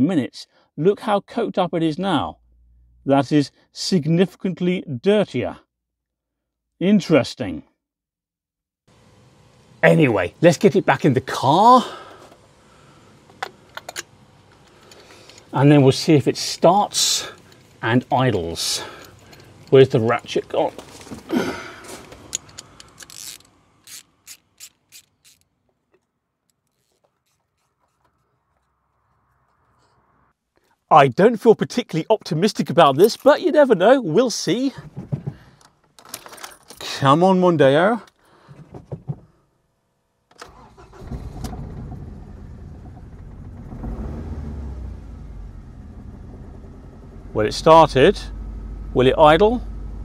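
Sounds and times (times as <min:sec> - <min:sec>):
starter motor cranking: 0:21.6 - 0:25.5, 0:40.3 - 0:44.9
ratchet wrench clicking: 0:22.3 - 0:25.5
car engine running: 0:41.1 - 0:50.0.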